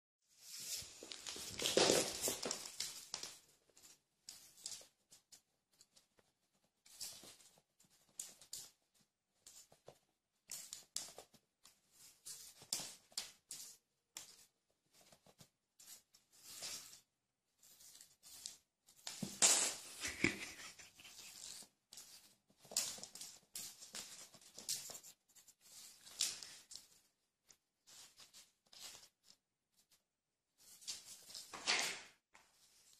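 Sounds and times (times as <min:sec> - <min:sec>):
paper rustling: 0:00.4 - 0:04.9
cat paws scrabbling on floor: 0:00.4 - 0:05.2.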